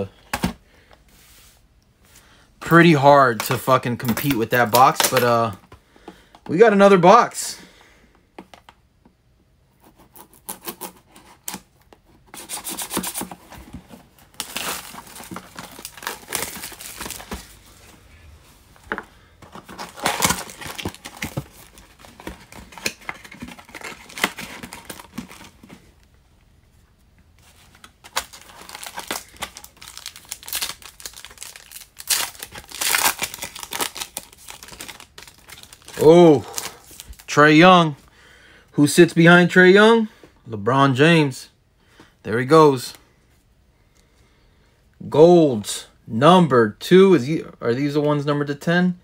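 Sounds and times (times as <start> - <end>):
shrink wrap crinkling: 2.7 - 5.6, 10.2 - 18.1, 18.7 - 26.1, 27.4 - 37.4
foil pack tearing open: 19.6 - 25.6, 28.1 - 37.2.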